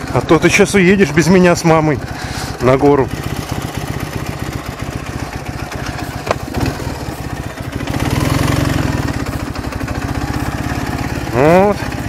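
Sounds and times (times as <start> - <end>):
motorcycle engine idling: 0.0 - 12.0.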